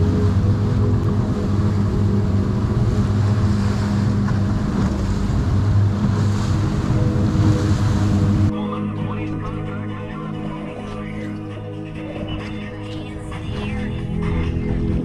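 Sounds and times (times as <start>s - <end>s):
wind on microphone: 0.0s - 8.5s
outboard motor running: 0.0s - 15.0s
water rushing past hull: 0.0s - 15.0s.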